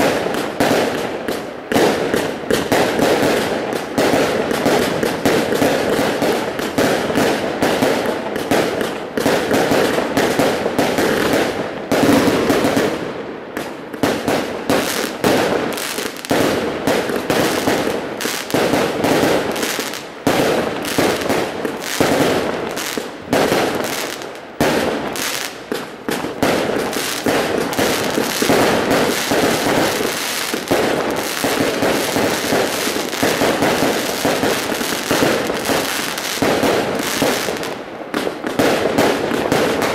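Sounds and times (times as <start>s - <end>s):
fireworks bangs and crackles: 0.0s - 39.9s.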